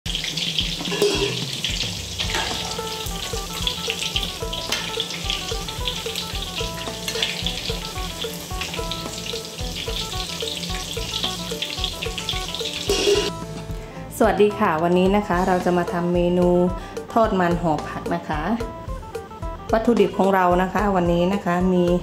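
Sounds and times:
oil sizzling in a wok: 0:00.1 - 0:14.2, 0:15.0 - 0:18.2.

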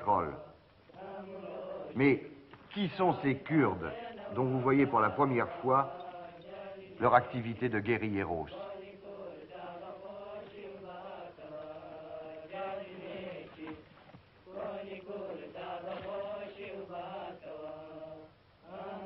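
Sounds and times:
voice chanting in long notes: 0:00.0 - 0:13.8.

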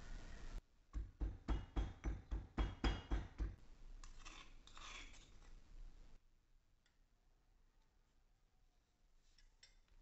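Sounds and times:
metal spoon scraping stone: 0:04.0 - 0:05.6.

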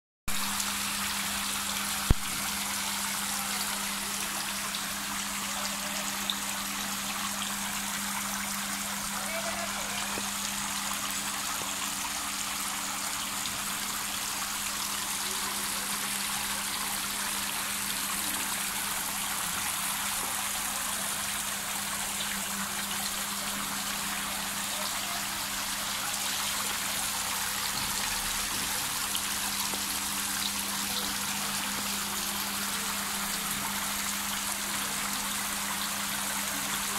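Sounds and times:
fountain water splashing: 0:00.4 - 0:36.9.

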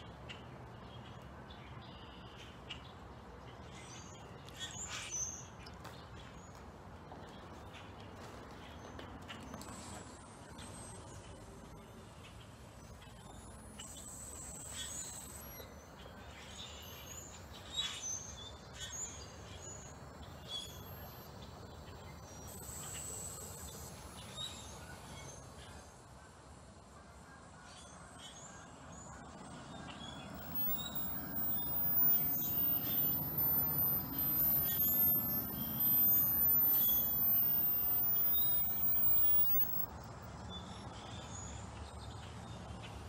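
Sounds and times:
blackbirds chirping: 0:12.2 - 0:25.9, 0:27.1 - 0:43.0.

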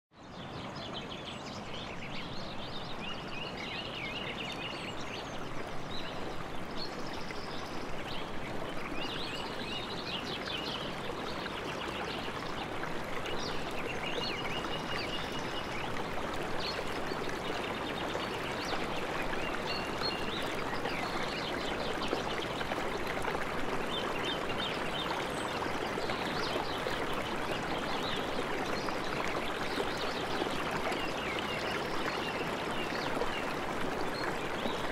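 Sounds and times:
river water running: 0:00.2 - 0:34.9.

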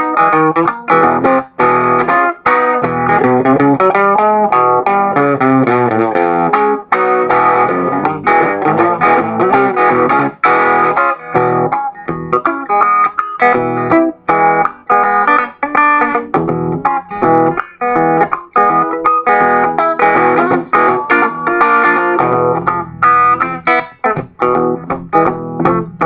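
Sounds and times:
electric guitar blues: 0:00.0 - 0:26.0.

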